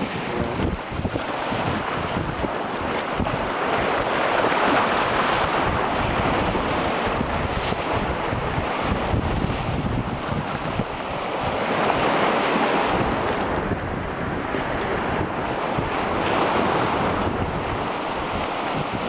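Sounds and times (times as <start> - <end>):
waves washing over pebbly shore: 0.0 - 13.4
wind buffeting microphone: 0.0 - 19.0.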